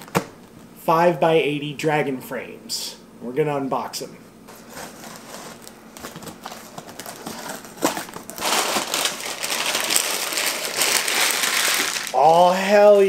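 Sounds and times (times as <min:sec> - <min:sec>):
packing paper crinkling: 0:04.5 - 0:12.4.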